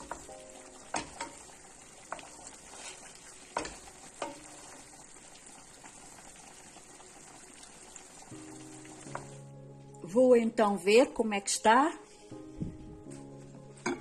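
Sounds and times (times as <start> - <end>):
wooden spoon knocking on pot: 0.0 - 2.4, 3.6 - 4.5
meat sizzling in sauce: 0.0 - 9.5.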